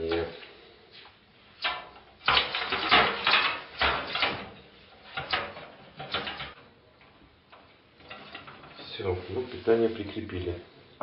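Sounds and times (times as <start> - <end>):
metal clatter and knocks: 1.6 - 6.6, 7.5 - 9.0.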